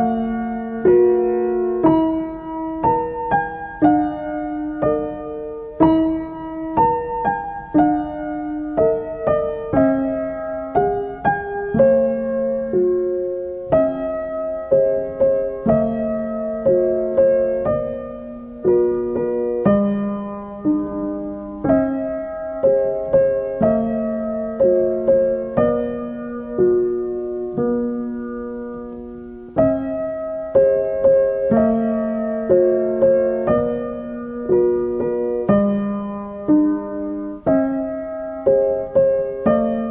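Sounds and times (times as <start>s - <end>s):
slow piano melody: 0.0s - 39.9s.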